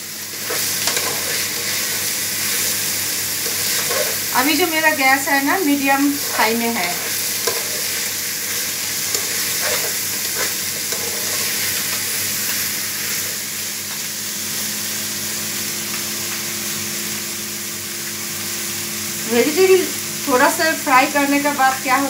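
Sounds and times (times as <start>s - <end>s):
fish frying in a pan: 0.0s - 22.0s
vegetables sizzling in a pot: 0.0s - 22.0s
metal spoon scraping: 0.4s - 2.8s, 3.4s - 4.3s, 6.2s - 12.0s.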